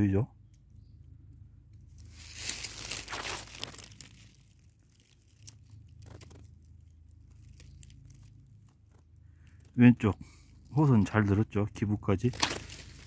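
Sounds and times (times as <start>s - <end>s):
dry leaves rustling: 1.9s - 9.6s, 12.2s - 13.0s.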